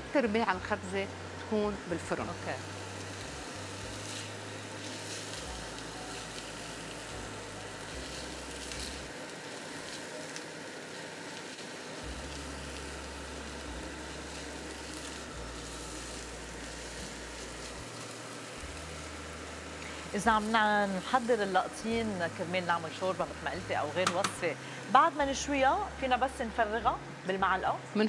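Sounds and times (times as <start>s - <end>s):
food sizzling in frying pan: 0.0s - 27.6s
range hood fan rushing: 0.0s - 27.7s.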